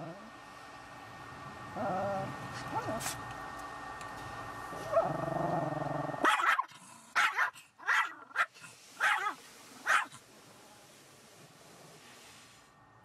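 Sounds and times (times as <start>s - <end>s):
steady mechanical hum: 0.0s - 13.0s
dog barking: 6.2s - 10.2s.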